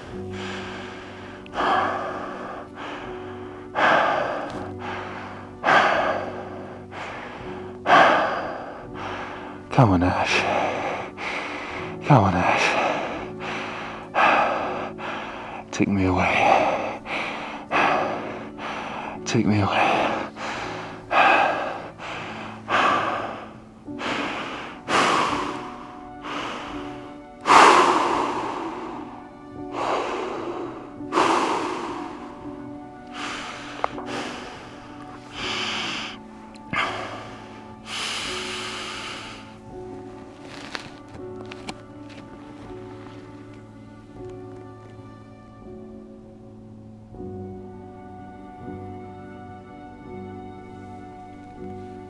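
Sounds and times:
man gasping breaths: 0.0 - 39.9
low music drone: 0.0 - 52.0.

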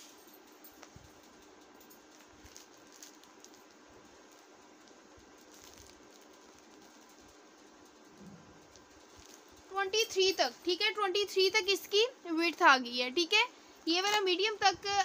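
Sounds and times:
low steady hum: 0.0 - 15.0
cloth rustling: 1.9 - 11.0.

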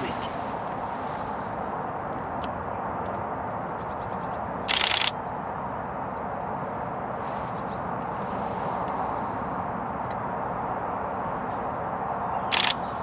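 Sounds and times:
outdoor background noise: 0.0 - 13.0
camera shutter bursts: 4.7 - 5.2, 12.5 - 12.8.

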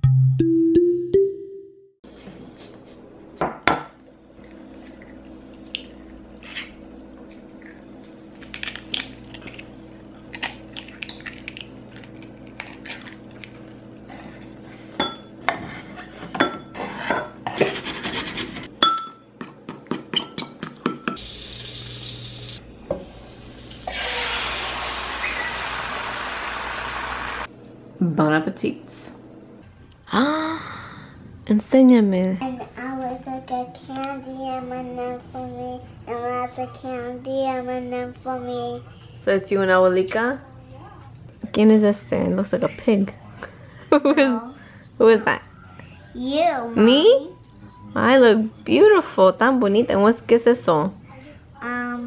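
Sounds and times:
utensils knocking on ceramic bowl: 18.8 - 21.2
egg sizzling in frying pan: 21.2 - 27.5.

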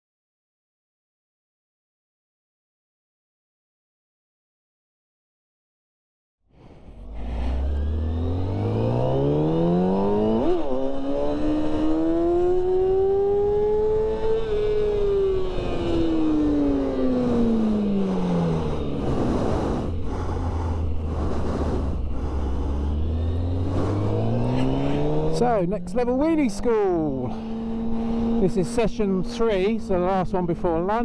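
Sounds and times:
rough noisy engine note: 6.6 - 11.0, 17.1 - 31.0
motorcycle engine accelerating: 6.9 - 31.0.

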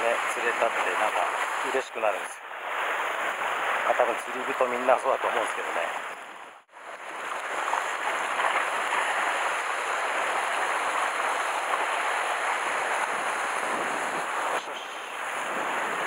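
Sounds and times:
sea surf washing over rocks: 0.0 - 6.2, 6.8 - 16.0.

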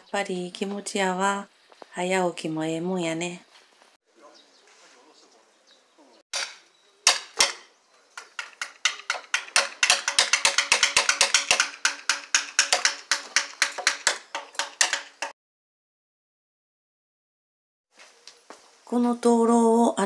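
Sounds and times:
mallet knocking wood: 6.4 - 15.3.

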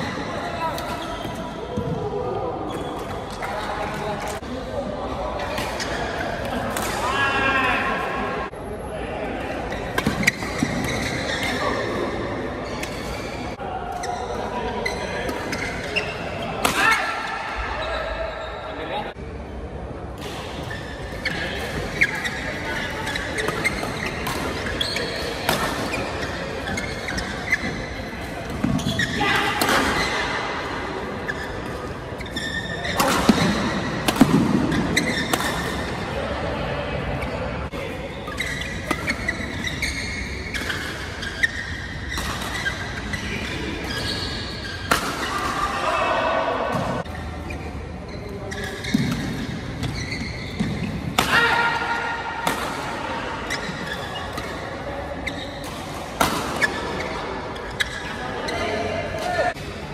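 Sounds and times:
shoes squeaking on court: 0.0 - 4.4, 9.7 - 16.6, 20.5 - 30.5, 31.2 - 36.0, 37.1 - 45.6, 46.7 - 51.2, 53.3 - 59.6
rackets hitting shuttlecock: 32.8 - 36.0, 50.6 - 54.8, 55.6 - 58.0.

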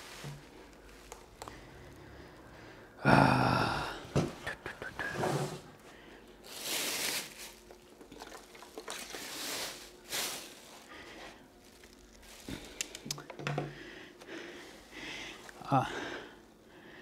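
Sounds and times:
plastic bag crinkling: 6.4 - 13.2.

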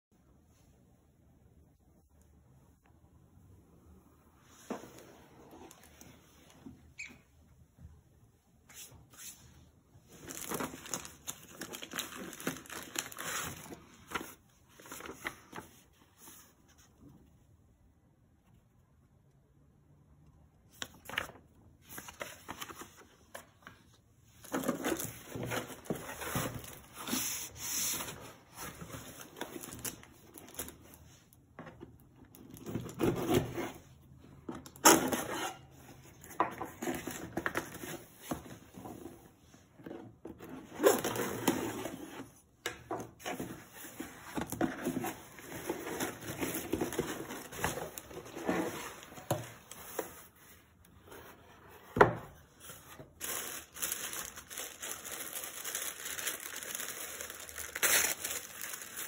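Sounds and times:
cardboard box rustling and scraping: 43.2 - 53.5.

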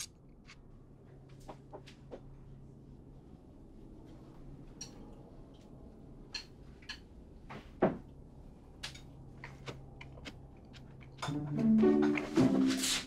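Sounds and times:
music: 11.2 - 13.0.

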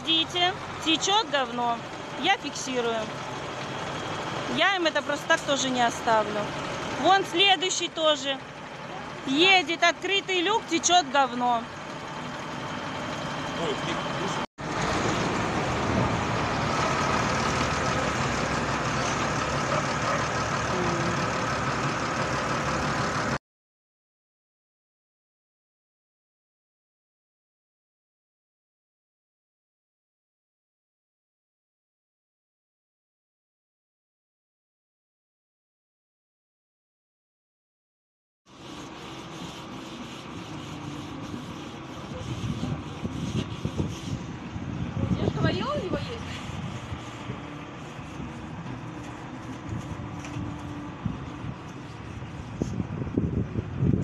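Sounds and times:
tractor diesel engine driving by: 0.0 - 23.4, 38.5 - 53.9
brush scrubbing steel fence: 38.5 - 44.4, 45.0 - 52.9.

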